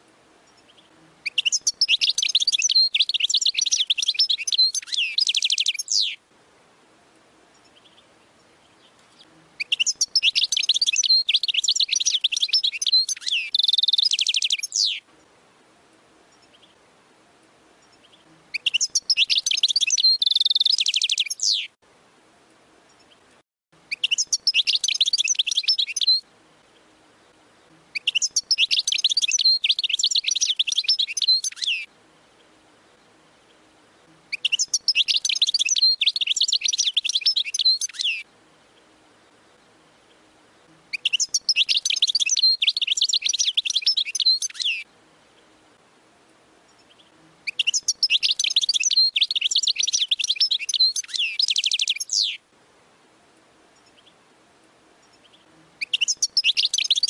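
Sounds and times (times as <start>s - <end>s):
goldfinch twittering trills: 0.5s - 6.2s, 9.6s - 15.0s, 17.8s - 21.7s, 23.9s - 26.2s, 28.0s - 31.9s, 34.3s - 38.2s, 40.9s - 44.8s, 46.8s - 52.4s, 55.1s - 57.0s.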